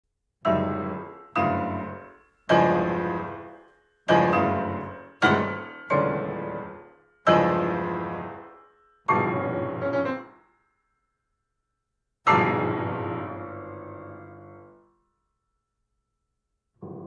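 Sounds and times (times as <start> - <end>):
loud piano chords: 0.4 - 10.5, 12.2 - 14.9, 16.8 - 17.0.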